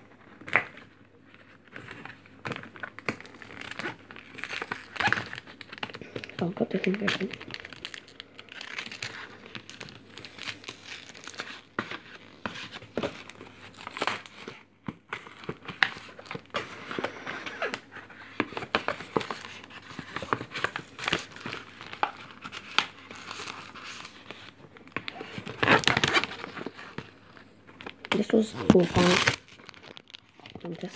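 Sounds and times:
packaging crinkling: 0.0s - 30.9s.

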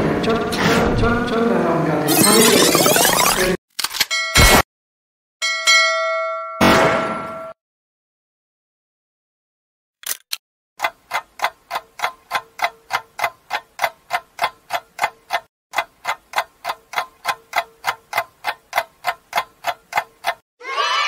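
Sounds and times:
clock ticking: 10.8s - 20.4s.

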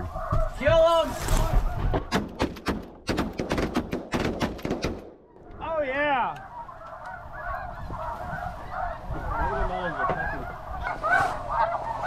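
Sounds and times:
geese honking in chorus: 0.0s - 2.1s, 5.3s - 12.0s.

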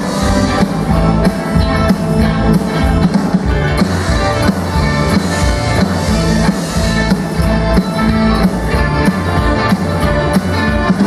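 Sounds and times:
bass guitar: 0.0s - 11.0s
drums: 0.0s - 11.0s
electric guitars strummed: 0.0s - 11.0s.

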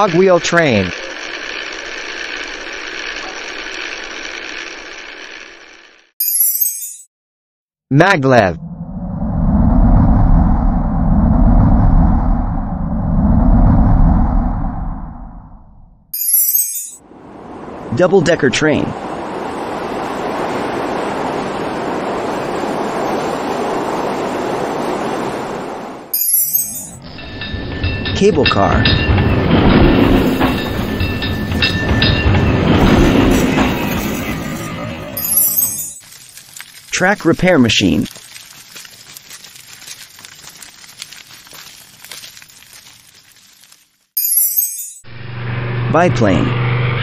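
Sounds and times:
electric train passing: 0.0s - 6.1s, 17.0s - 35.8s, 45.1s - 47.0s
track machine rattling stones: 0.0s - 6.1s, 35.2s - 43.8s.

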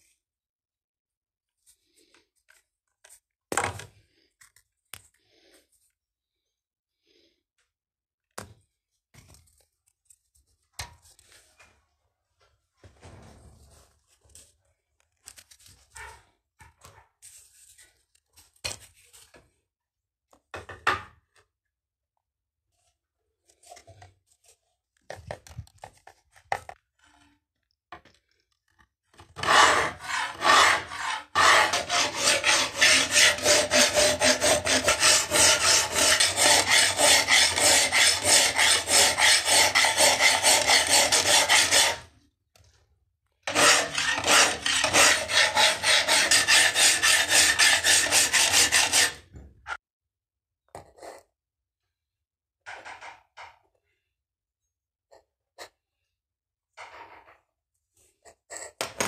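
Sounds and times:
hand file rasping steel: 29.4s - 42.1s, 43.5s - 49.3s.

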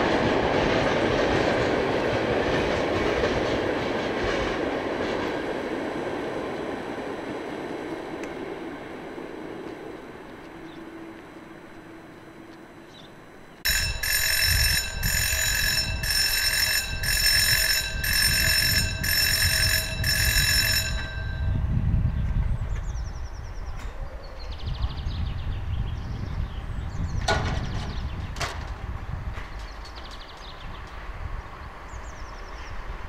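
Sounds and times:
electric alarm bell ringing: 13.6s - 21.8s.

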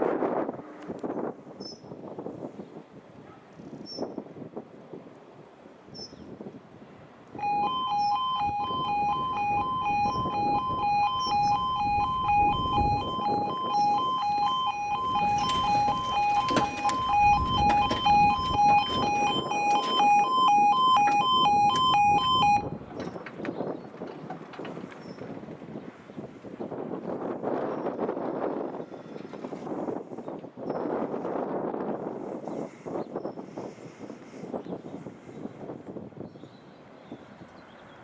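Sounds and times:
wind on microphone: 0.0s - 38.0s
two-tone warning alarm wail: 7.4s - 22.8s.

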